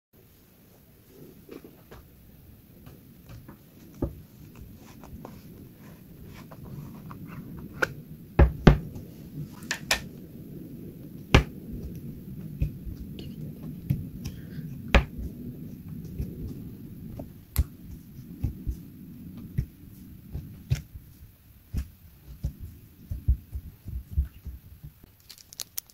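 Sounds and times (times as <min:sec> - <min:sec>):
slime squishing: 0:11.1 - 0:25.9.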